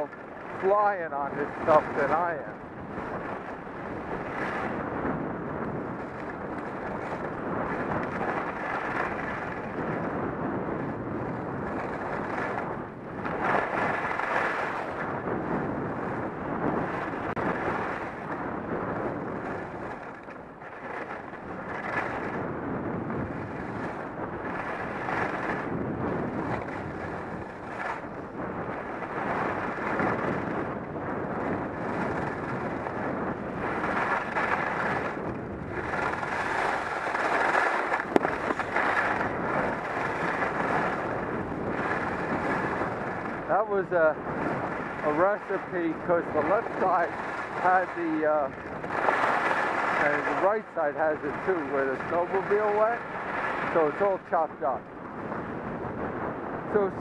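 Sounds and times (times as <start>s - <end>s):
wind rushing over camera: 0.0s - 57.0s
edges scraping over snow: 33.7s - 41.1s, 48.9s - 50.5s.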